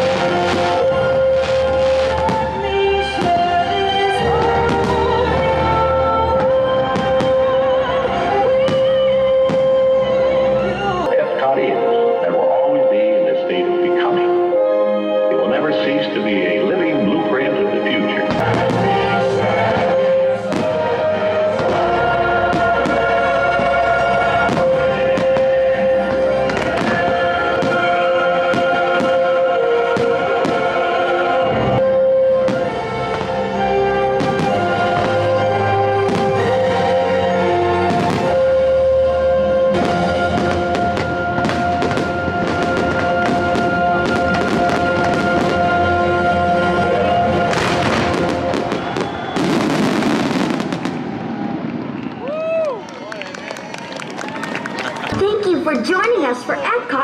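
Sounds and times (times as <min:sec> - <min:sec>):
fireworks bursting: 0:00.0 - 0:10.3, 0:18.2 - 0:52.7
music with long held notes: 0:00.0 - 0:52.2.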